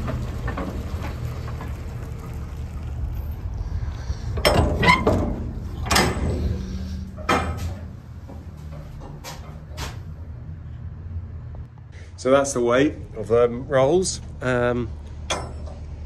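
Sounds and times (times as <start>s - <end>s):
tractor engine idling: 0.0s - 10.4s
metal container door clanking: 4.4s - 8.0s.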